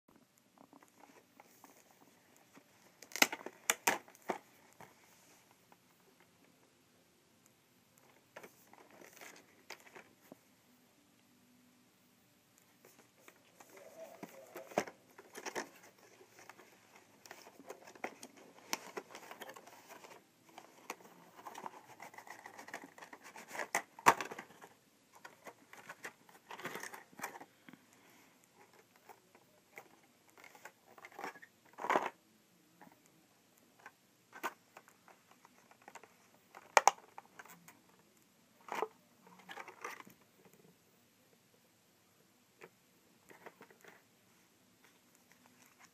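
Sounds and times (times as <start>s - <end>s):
packaging rustling and crinkling: 12.9s - 27.6s.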